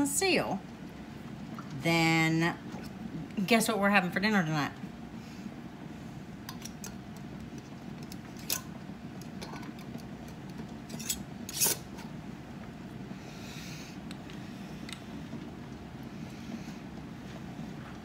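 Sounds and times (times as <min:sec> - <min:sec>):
metal lid clicks and scrapes on jar: 0:10.9 - 0:11.8.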